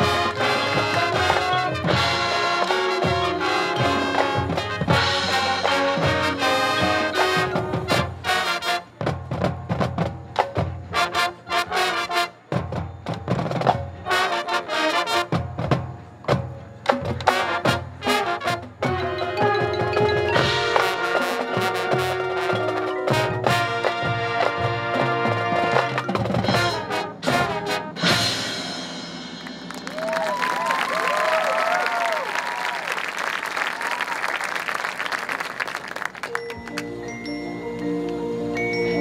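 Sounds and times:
brass chords: 0:00.0 - 0:09.2, 0:10.8 - 0:12.6, 0:14.0 - 0:15.7, 0:17.2 - 0:29.7
marching band playing: 0:00.0 - 0:31.5, 0:34.5 - 0:39.0
marimbas: 0:18.8 - 0:23.9, 0:36.2 - 0:39.0
drum and mallet percussion strikes: 0:18.8 - 0:30.1.

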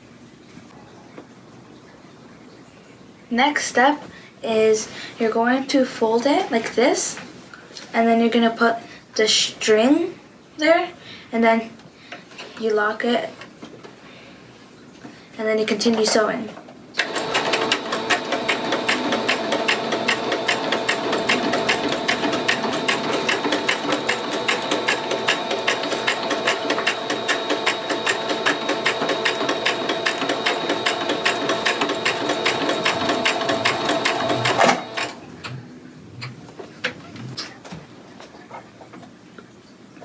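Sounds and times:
sewing machine stitching: 0:17.0 - 0:35.2.

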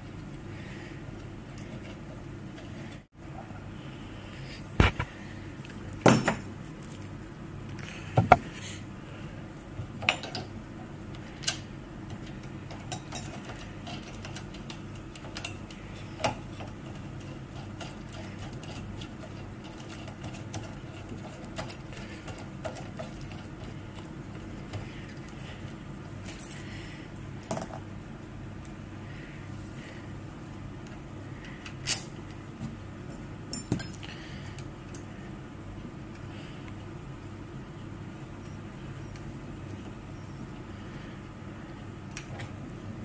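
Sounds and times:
steady low hum: 0:00.0 - 0:43.0
metal parts clicking and clinking: 0:33.5 - 0:34.1.

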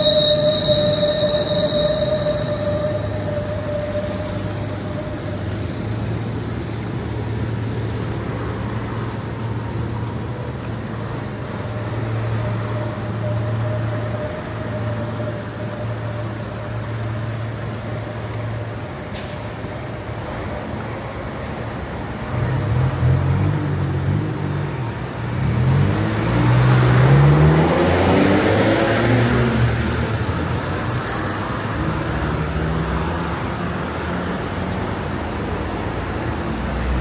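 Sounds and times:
high whine: 0:00.0 - 0:06.1
road traffic rumble: 0:00.0 - 0:37.0.

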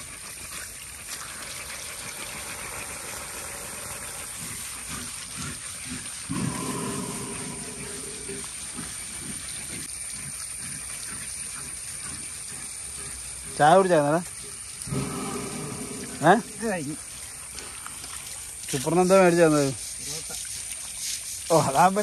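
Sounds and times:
water hissing: 0:00.0 - 0:22.0
elephant low call: 0:01.6 - 0:09.9, 0:14.8 - 0:16.8.

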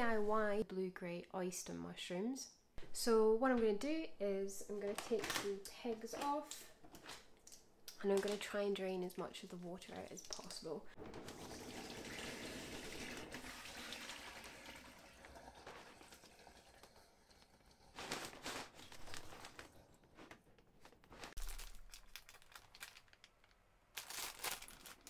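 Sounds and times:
plastic bag crinkling: 0:04.7 - 0:08.6, 0:17.8 - 0:25.0
water pouring into steel sink: 0:11.1 - 0:18.0.

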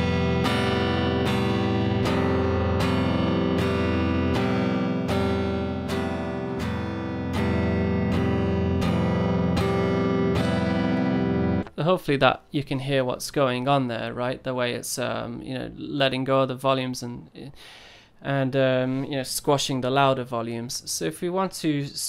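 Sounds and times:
electric guitar strumming chord: 0:00.0 - 0:11.7.

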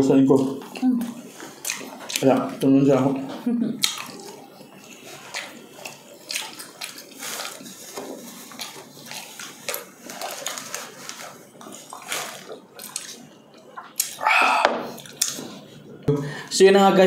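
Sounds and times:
wet eating smacks and clicks: 0:01.4 - 0:02.4, 0:03.8 - 0:13.2, 0:13.8 - 0:14.2, 0:15.0 - 0:15.4
plastic gloves rustling: 0:04.4 - 0:13.3.

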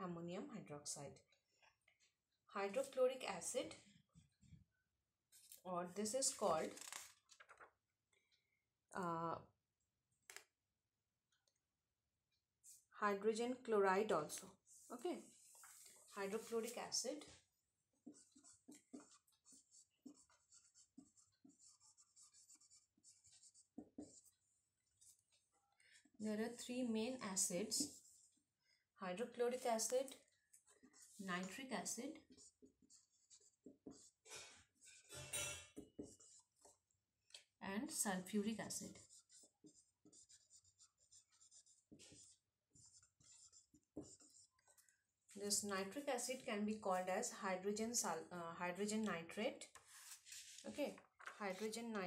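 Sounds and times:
pen scratching while writing: 0:14.8 - 0:25.5, 0:26.5 - 0:28.4, 0:29.5 - 0:36.8, 0:37.9 - 0:44.8.

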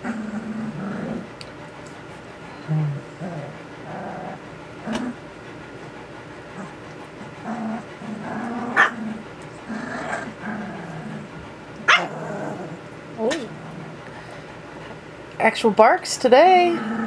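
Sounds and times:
puppies growling: 0:00.0 - 0:15.2, 0:16.6 - 0:17.0
puppy barks: 0:08.8 - 0:09.0, 0:11.9 - 0:12.1.

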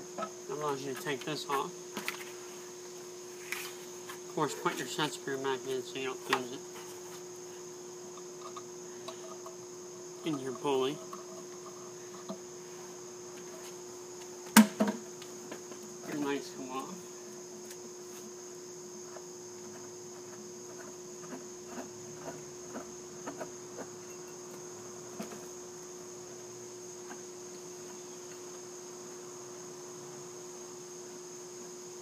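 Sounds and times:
crickets trilling: 0:00.0 - 0:32.0
low steady hum: 0:00.0 - 0:32.0.

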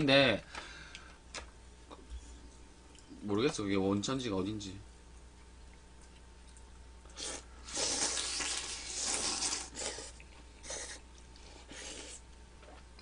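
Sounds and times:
slurping noodles and broth: 0:07.1 - 0:12.2.

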